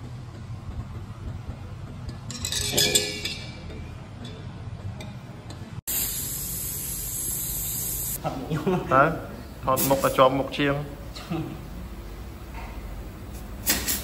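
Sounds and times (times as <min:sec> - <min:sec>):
metallic clinking: 0:02.1 - 0:04.5
steady high hiss: 0:05.9 - 0:10.6.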